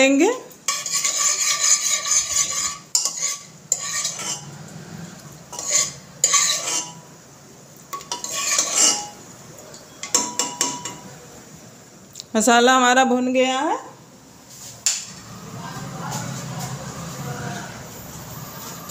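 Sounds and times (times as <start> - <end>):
spices roasting in ghee: 0.1 - 11.6
metal spoon scraping a pot: 0.7 - 7.1, 7.9 - 9.2.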